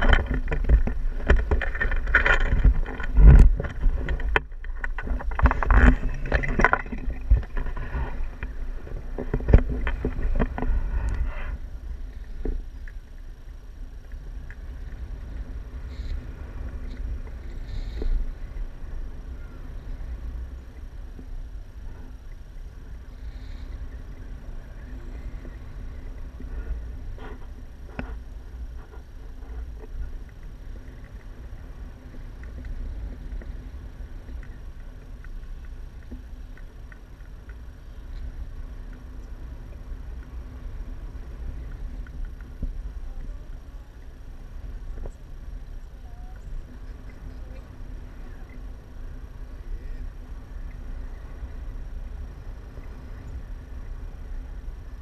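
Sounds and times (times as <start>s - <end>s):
wind rushing over microphone: 0.0s - 55.0s
faint clicks: 12.0s - 18.7s, 23.6s - 44.2s.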